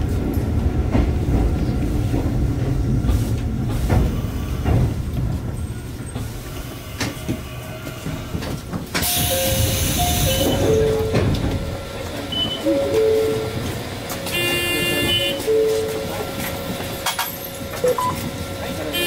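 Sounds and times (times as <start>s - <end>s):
electric train stopping: 9.0s - 18.9s.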